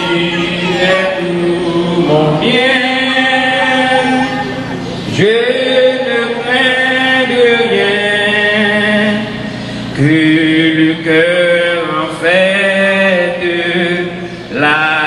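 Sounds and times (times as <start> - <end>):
voices singing a slow hymn: 0.0 - 15.0.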